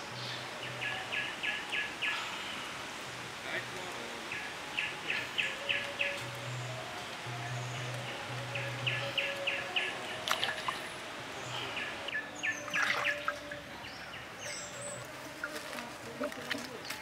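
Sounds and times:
birds chirping: 0.0s - 17.0s
whistled bird notes: 11.4s - 15.0s.

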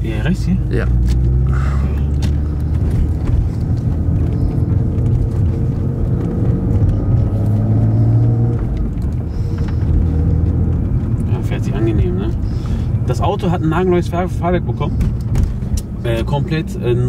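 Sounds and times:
car engine heard from cabin: 0.0s - 17.0s.

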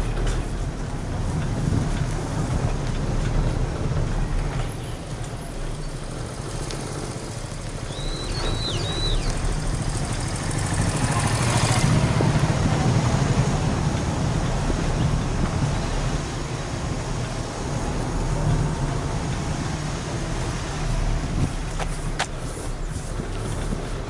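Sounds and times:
wind rumble on microphone: 0.0s - 24.0s.

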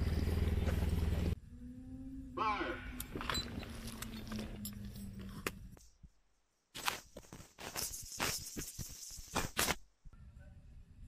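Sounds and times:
gear and rifles clicking and rattling: 3.0s - 5.8s.

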